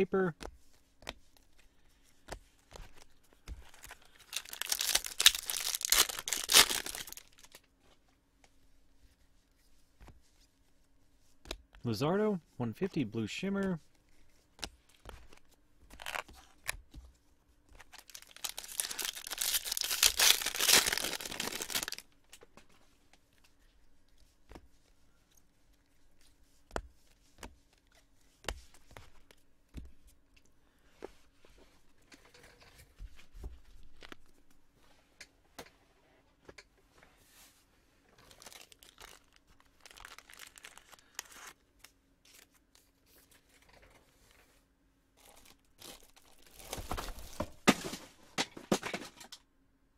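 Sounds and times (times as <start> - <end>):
packaging crinkling: 3.7 - 7.6, 15.9 - 16.7, 17.8 - 22.1, 38.2 - 42.6, 45.2 - 47.3
packaging tearing: 3.8 - 7.6, 15.9 - 16.6, 17.9 - 22.0, 38.2 - 41.6.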